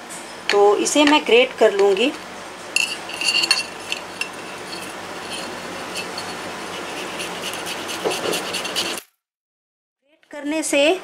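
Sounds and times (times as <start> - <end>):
grater clinking against plate: 3.0 - 9.0
potato rasping on metal grater: 4.0 - 9.1.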